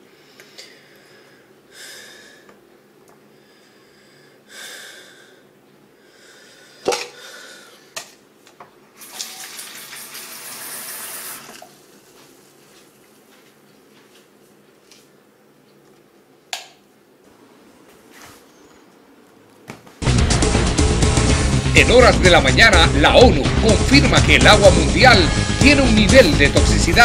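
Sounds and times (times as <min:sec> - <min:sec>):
tap water rushing: 0:09.0 - 0:11.8
water hissing from spout: 0:09.0 - 0:11.8.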